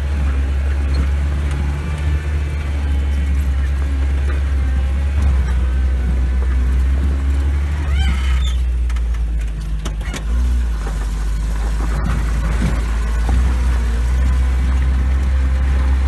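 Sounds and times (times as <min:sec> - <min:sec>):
vehicle engine droning: 0:00.0 - 0:16.0
vehicle knocks and rattles: 0:00.0 - 0:16.0
short rising squeak: 0:07.7 - 0:08.8.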